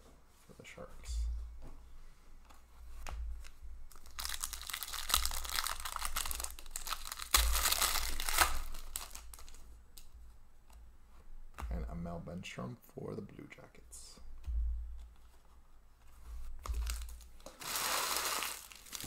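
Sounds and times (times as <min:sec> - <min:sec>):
foil wrapper tearing and crinkling: 0:03.9 - 0:09.6, 0:16.8 - 0:19.0.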